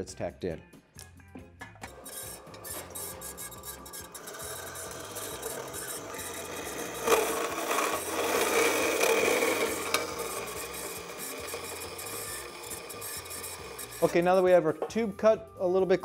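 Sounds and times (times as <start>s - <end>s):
bandsaw blade rasping through metal: 1.9s - 14.4s.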